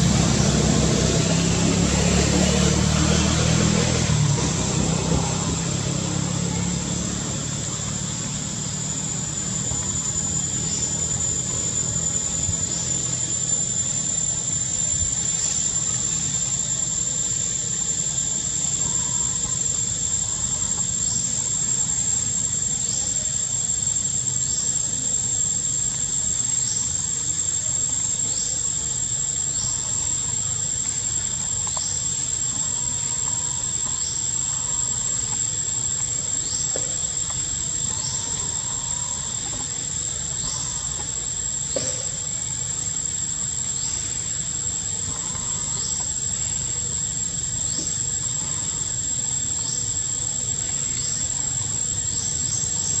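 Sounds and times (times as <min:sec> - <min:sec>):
insects droning: 0:00.0 - 0:53.0.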